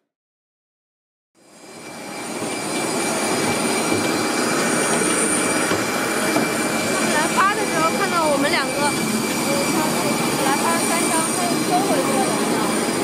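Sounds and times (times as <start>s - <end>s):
jet engines roaring: 1.4s - 13.0s.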